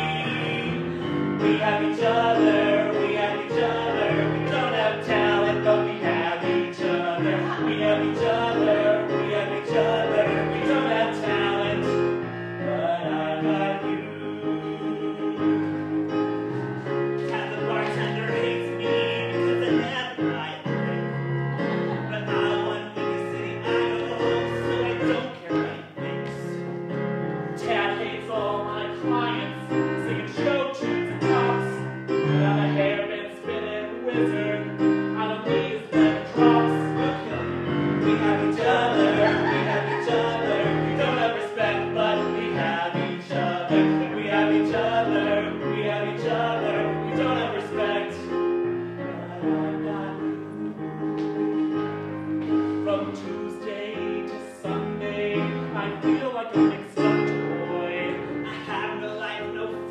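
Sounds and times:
people singing: 0.0s - 26.7s, 27.6s - 48.4s, 52.6s - 59.9s
piano accompaniment: 0.0s - 59.9s.

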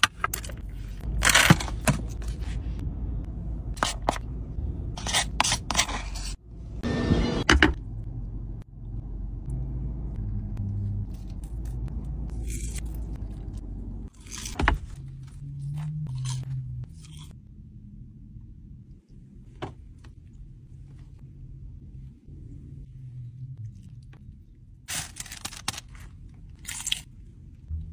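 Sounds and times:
food crunching and scraping: 11.0s - 17.4s, 24.9s - 27.2s.

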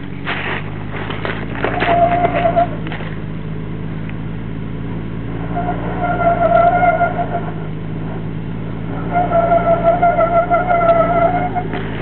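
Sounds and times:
rocks and chassis clattering: 0.0s - 4.2s, 9.0s - 12.0s
engine running at low revs: 0.0s - 12.0s.

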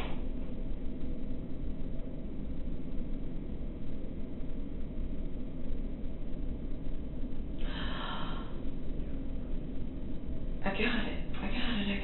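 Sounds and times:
low room rumble: 0.0s - 12.0s.

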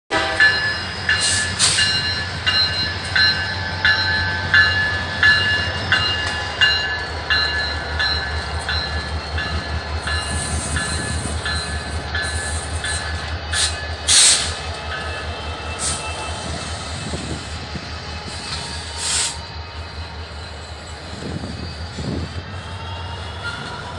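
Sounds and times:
locomotive bell ringing: 0.1s - 18.9s
diesel locomotive engine drone: 0.1s - 23.9s.

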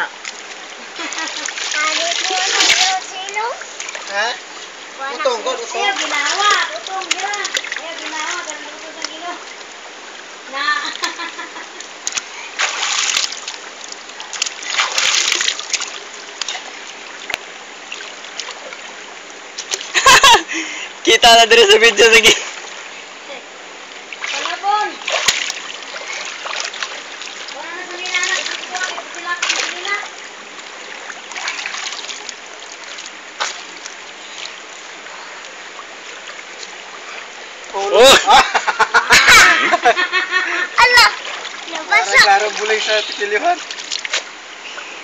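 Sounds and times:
child splashing water: 0.0s - 4.3s, 5.3s - 9.6s, 12.0s - 16.9s, 24.2s - 30.2s, 30.8s - 34.6s, 39.0s - 44.3s
river water running over rocks: 0.0s - 45.0s.

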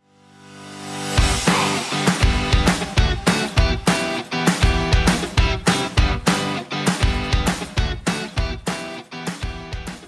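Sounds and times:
guitar rock music with drums: 0.8s - 10.0s.

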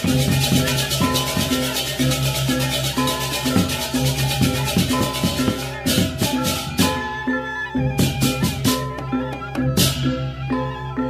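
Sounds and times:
fast rattling rhythm: 0.0s - 7.2s
beat: 0.0s - 10.3s.

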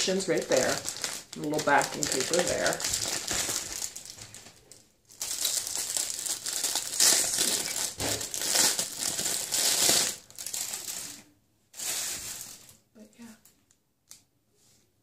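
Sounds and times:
plastic packaging crinkling: 0.0s - 12.8s.

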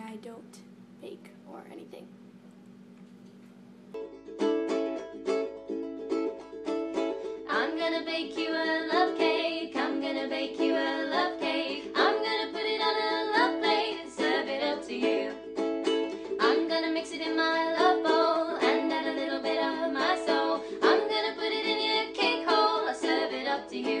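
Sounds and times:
strummed string instrument: 3.9s - 24.0s
person singing: 7.3s - 15.6s, 16.2s - 24.0s.

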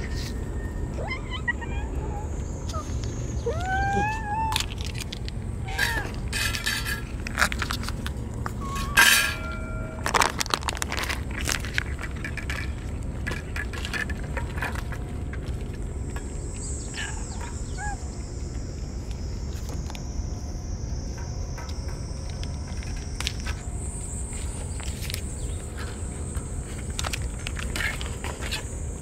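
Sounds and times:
high insect drone: 0.0s - 29.0s
cats eating from metal dishes: 4.6s - 17.6s.

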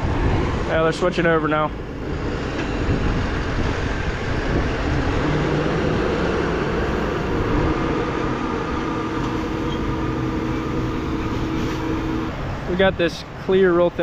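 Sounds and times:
steady hum: 0.0s - 12.8s
tractor engine under load: 2.2s - 12.3s.

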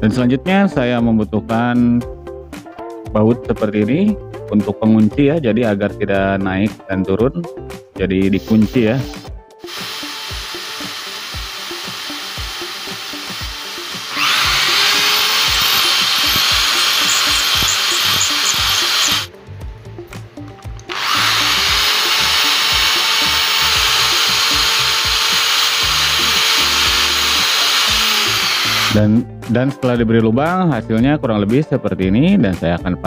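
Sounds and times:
background music: 0.0s - 33.0s
electric drill boring wood: 9.6s - 19.3s, 20.8s - 29.0s.

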